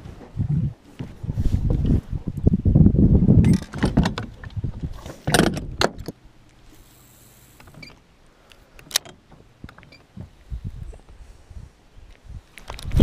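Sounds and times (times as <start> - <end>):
faint steady hum: 0.0 - 13.0
fishing rod handling rumble: 3.3 - 6.2.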